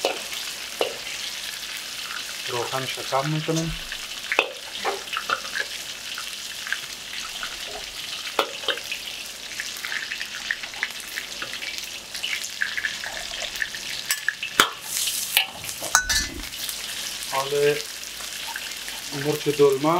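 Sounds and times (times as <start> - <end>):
food sizzling in hot oil: 0.0 - 19.9
metal spatula scraping a pan: 14.8 - 16.7.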